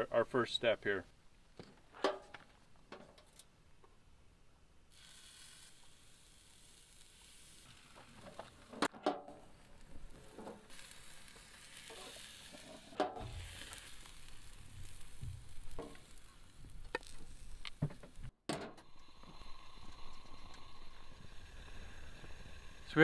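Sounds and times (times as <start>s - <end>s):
steaks sizzling on a grill: 4.9s - 8.7s, 9.5s - 17.8s, 18.8s - 23.0s.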